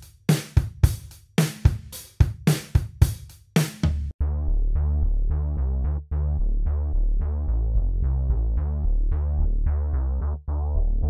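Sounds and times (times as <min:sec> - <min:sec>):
deep stepping bass line: 0:03.8 - 0:11.0.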